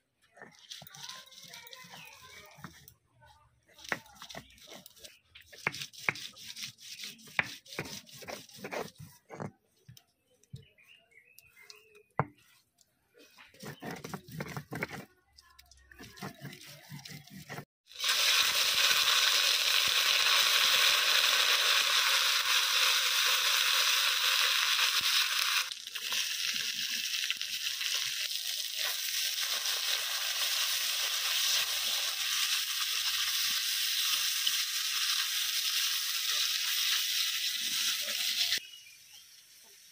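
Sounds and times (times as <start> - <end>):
spatula stirring in wok: 3.8 - 9.4, 11.6 - 15.1
stone grinding on stone slab: 3.9 - 9.5, 12.2 - 12.6, 13.4 - 15.1
paste sizzling in hot oil: 16.4 - 39.9.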